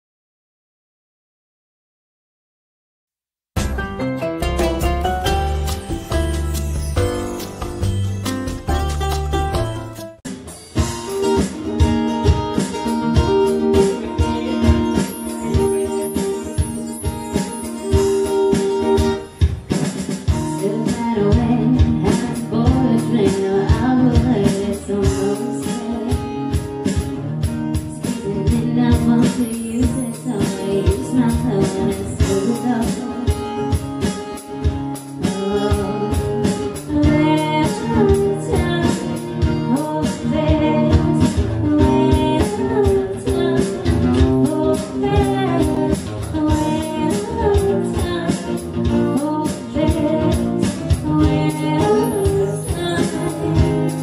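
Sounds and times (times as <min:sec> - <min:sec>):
acoustic guitar: 0:03.6 - 0:54.0
drum kit: 0:03.6 - 0:54.0
woman singing: 0:20.3 - 0:33.9, 0:35.2 - 0:54.0.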